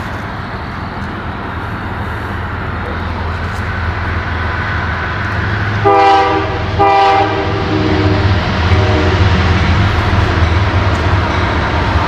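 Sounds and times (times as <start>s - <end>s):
locomotive engine rumble: 0.0s - 12.0s
locomotive horn blasts: 5.8s - 9.4s.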